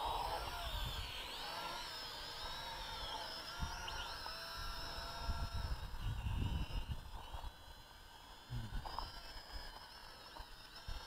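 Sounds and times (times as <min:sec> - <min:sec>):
quadcopter propellers whining: 0:00.0 - 0:11.0
wind buffeting microphone: 0:04.7 - 0:07.6.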